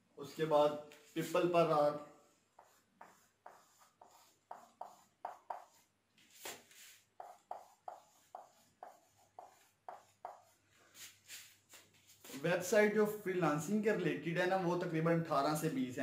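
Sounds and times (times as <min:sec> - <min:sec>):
marker squeaking on whiteboard: 0:02.3 - 0:12.4.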